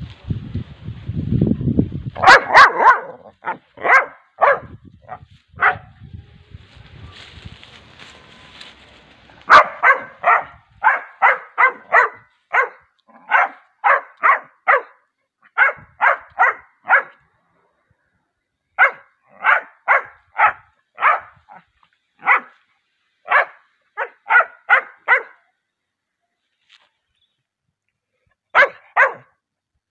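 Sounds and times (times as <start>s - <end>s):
dog barking: 2.2s - 6.0s, 9.5s - 17.2s, 18.8s - 21.6s, 22.2s - 22.6s, 23.2s - 25.5s, 28.5s - 29.4s.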